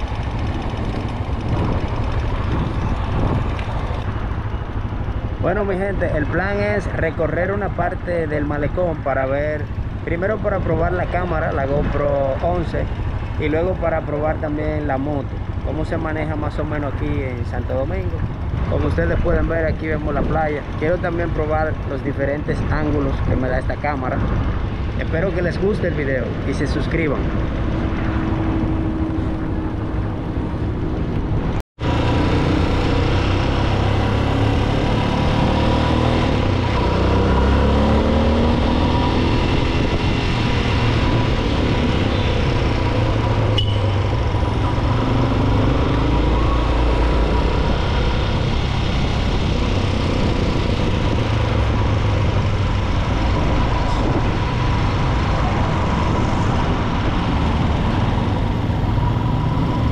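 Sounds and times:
motorcycle engine accelerating: 0:00.0 - 0:06.8, 0:27.2 - 0:59.9
road and wind noise: 0:00.0 - 0:59.9.

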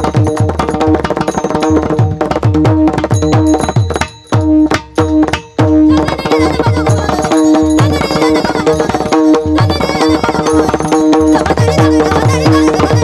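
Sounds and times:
drum playing fast rhythm: 0:00.0 - 0:13.0
hand cymbals clashing: 0:03.0 - 0:05.8.

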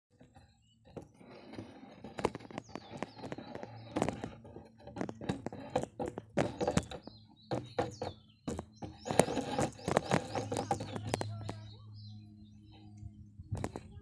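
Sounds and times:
sharp clicks and knocks: 0:00.2 - 0:11.8, 0:13.5 - 0:14.0
bird chirps: 0:02.3 - 0:04.5, 0:06.4 - 0:13.8.

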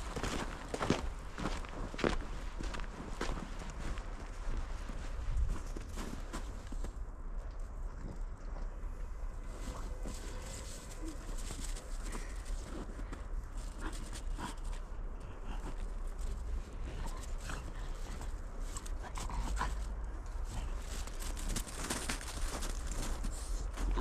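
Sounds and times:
footsteps crunching in snow: 0:00.0 - 0:07.0, 0:16.0 - 0:24.0.

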